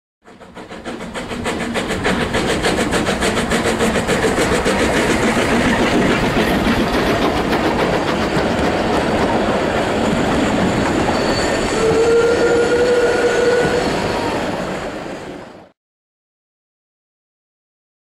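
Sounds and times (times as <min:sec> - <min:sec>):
steam locomotive exhaust chuffing: 0:00.2 - 0:15.7.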